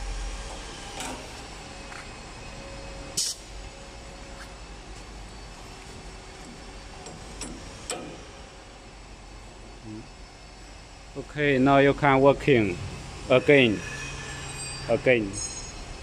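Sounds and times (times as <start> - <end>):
compressed air hiss: 3.2 - 3.5.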